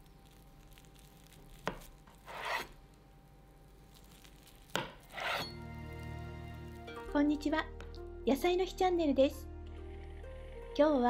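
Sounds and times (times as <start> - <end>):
knife slicing omelette on board: 1.6 - 2.8, 4.7 - 5.6.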